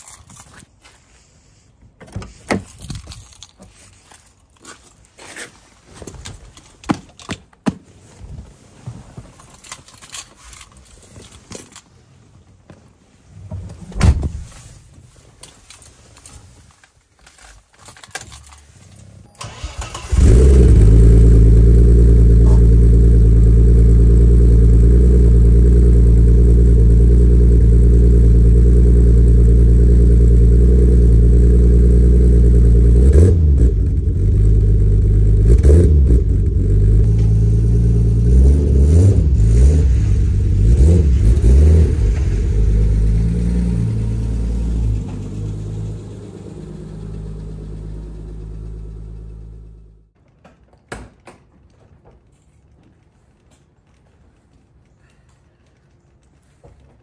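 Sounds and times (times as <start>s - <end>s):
loud thump: 13.9s - 14.5s
engine revving: 19.4s - 49.9s
car engine starting and idling: 19.4s - 50.2s
quiet footsteps: 50.1s - 57.0s
clicks and knocks: 50.2s - 57.0s.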